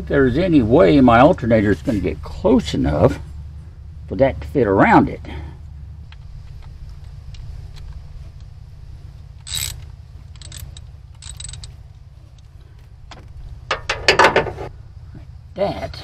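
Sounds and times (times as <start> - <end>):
ratchet wrench clacks: 9.4 - 11.7
metal clinks and scrapes: 9.4 - 12.5.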